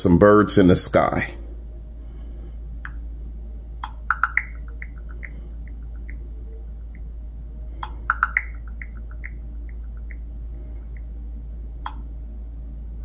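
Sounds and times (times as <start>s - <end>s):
steady low hum: 0.0s - 13.0s
soft chirping blips: 3.8s - 7.1s, 7.7s - 11.2s.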